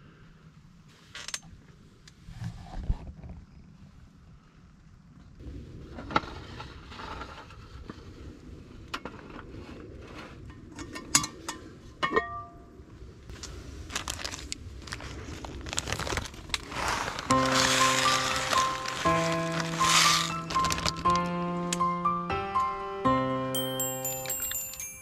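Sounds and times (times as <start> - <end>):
music: 17.3 - 25.0.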